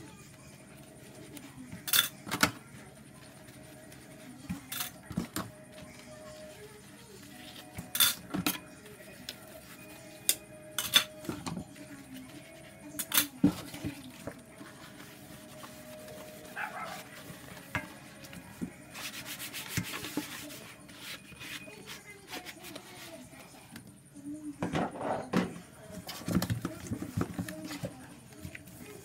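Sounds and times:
dishware clinking: 10.7s - 11.3s
sponge scrubbing plastic bowl: 11.7s - 23.5s.

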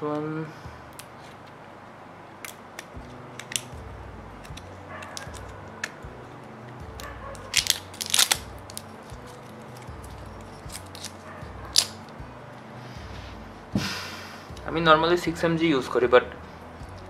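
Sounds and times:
plastic dropper cap cracking: 2.4s - 3.8s, 4.4s - 6.0s, 7.4s - 9.9s, 10.7s - 12.0s.

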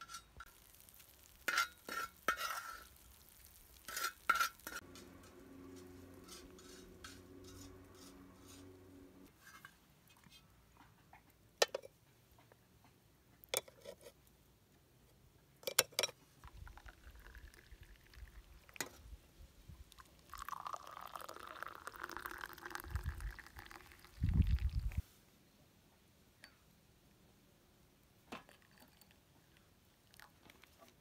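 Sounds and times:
liquid pouring into vessel: 16.4s - 18.9s, 19.9s - 25.0s.

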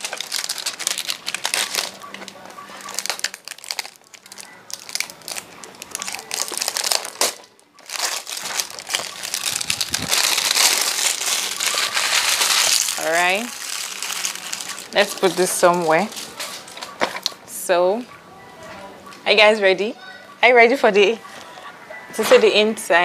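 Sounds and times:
plastic wrap crinkling: 0.0s - 17.4s.

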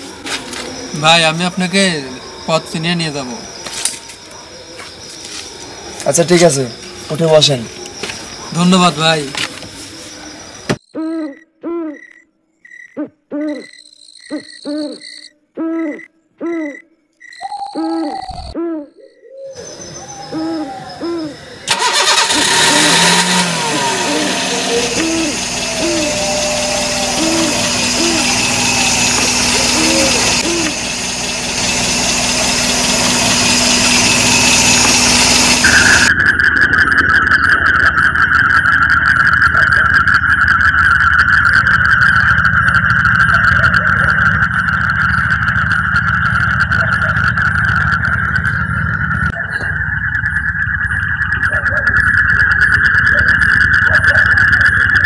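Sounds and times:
night bird hooting: 0.0s - 55.0s
high droning tone: 21.3s - 55.0s
car engine running: 21.7s - 55.0s.

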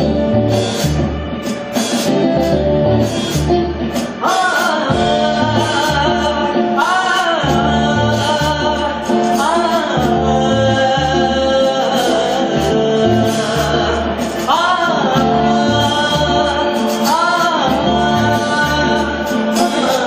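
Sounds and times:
bass line: 0.0s - 20.0s
electric guitar: 0.0s - 20.0s
man singing: 4.2s - 20.0s.

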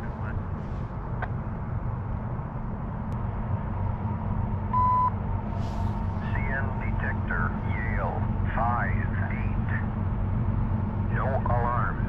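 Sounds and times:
distant diesel locomotives rumbling: 0.0s - 12.0s.

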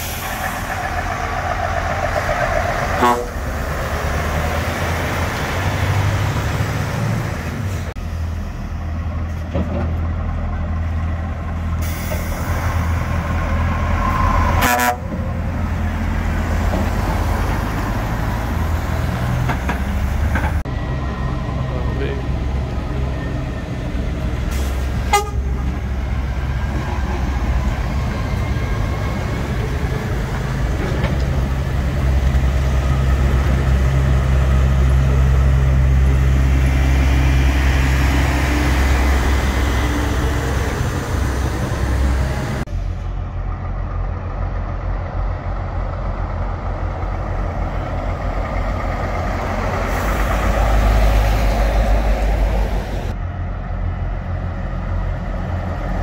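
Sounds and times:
lorry diesel engines rumbling: 0.0s - 56.0s
short horn toot: 3.0s - 3.4s, 14.6s - 15.1s, 25.1s - 25.6s.

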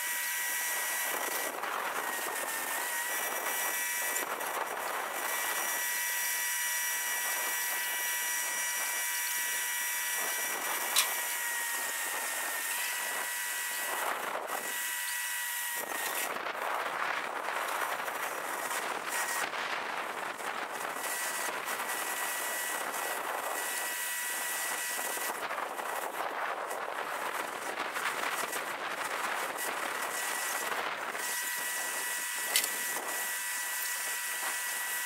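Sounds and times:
whirring machinery: 0.0s - 35.0s
sharp click: 32.5s - 32.8s.

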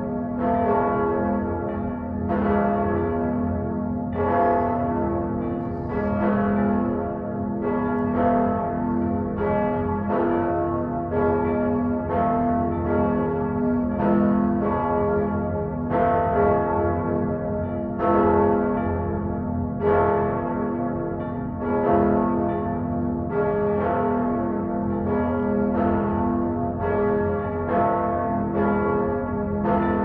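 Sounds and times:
church bells ringing: 0.0s - 30.0s.

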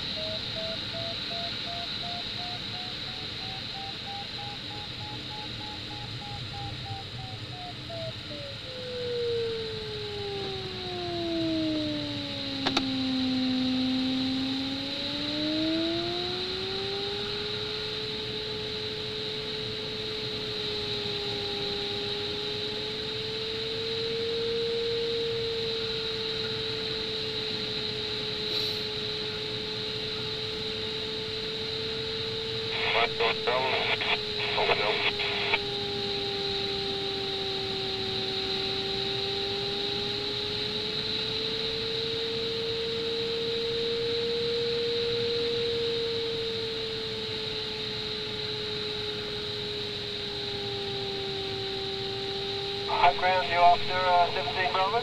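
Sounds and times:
variometer beeping tone: 0.0s - 8.3s
sharp click: 12.6s - 12.9s
air hissing around canopy: 28.4s - 28.9s.

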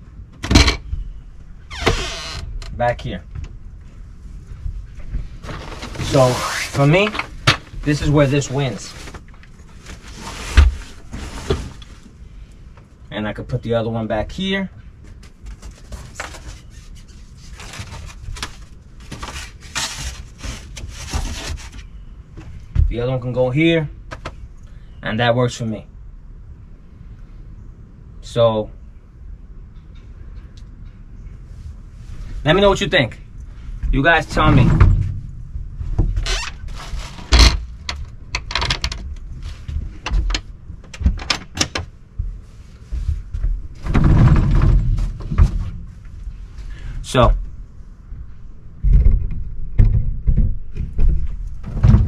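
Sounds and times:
knocks and clicks of handling: 37.2s - 42.4s.

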